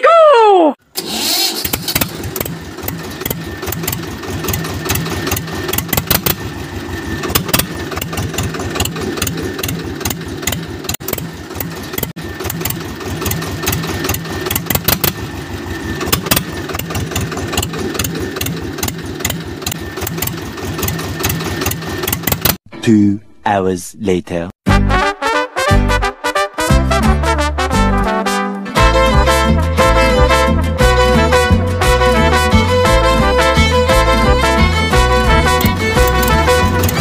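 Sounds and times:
engine chugging with rattle: 1.0 - 22.6, 33.0 - 37.0.

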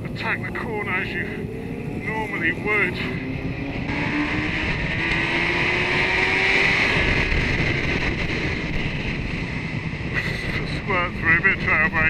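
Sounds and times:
wind rush on microphone: 0.0 - 12.0
motorcycle engine running hard: 1.4 - 12.0.

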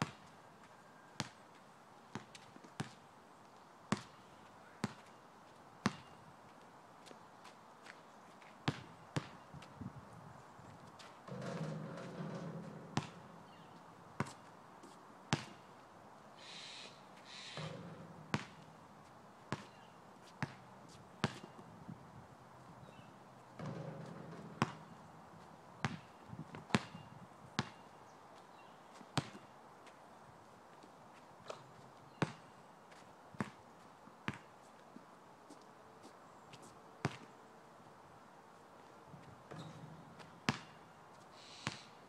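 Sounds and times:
basketball bouncing on asphalt: 1.2 - 1.4, 2.1 - 3.0, 3.9 - 4.1, 4.8 - 5.1, 5.8 - 6.2, 8.6 - 9.7, 11.3 - 14.5, 15.3 - 15.7, 17.6 - 21.7, 23.5 - 27.8, 29.2 - 29.5, 31.5 - 33.6, 34.3 - 34.5, 37.0 - 37.3, 39.5 - 40.9, 41.6 - 41.9
ball striking hoop: 11.3 - 13.7, 17.6 - 18.8, 23.6 - 25.1.

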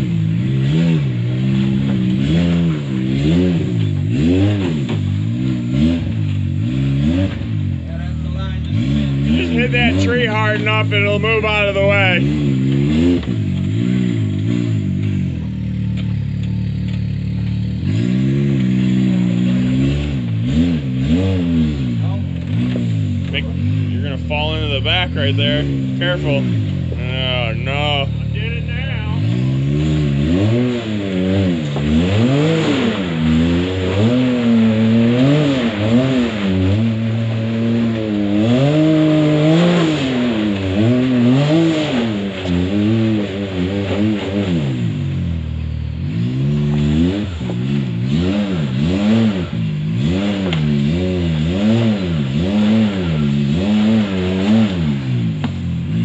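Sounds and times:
utility vehicle engine revving: 0.0 - 56.0.

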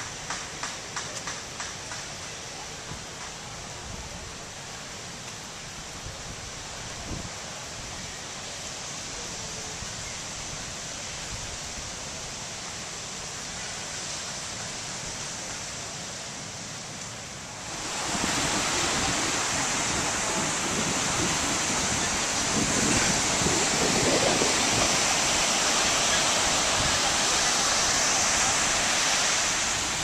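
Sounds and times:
ocean surf breaking: 17.2 - 30.0
wind rumbling on microphone: 17.7 - 30.0.

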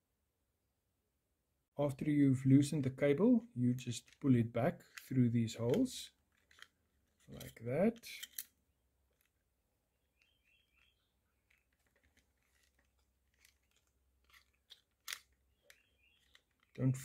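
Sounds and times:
cables rustling: 3.7 - 17.0.

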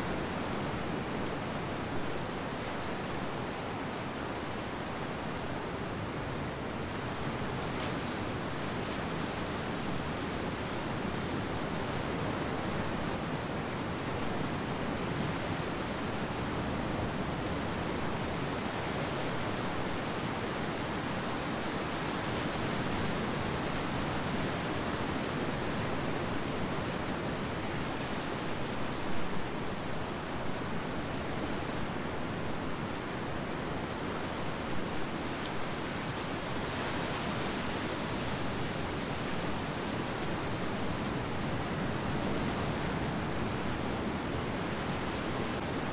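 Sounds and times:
ocean surf washing on beach: 0.0 - 45.9.

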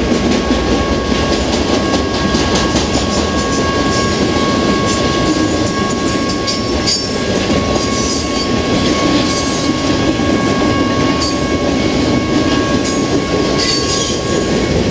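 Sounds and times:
high ringing whine: 0.0 - 14.9
train wheels rumbling on rail: 0.0 - 14.9
wheels squealing: 0.4 - 14.9.

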